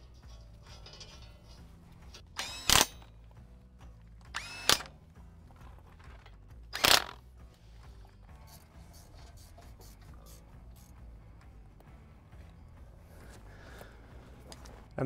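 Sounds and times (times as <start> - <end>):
cordless power tool whining: 2.4 - 3.1, 4.3 - 5.0.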